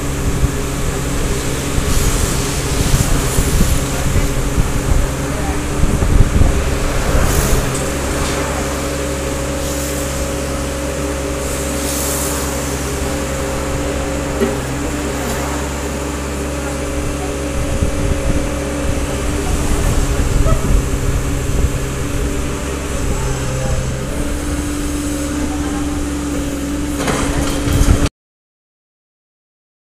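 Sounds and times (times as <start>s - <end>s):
mini excavator diesel engine: 0.0s - 28.1s.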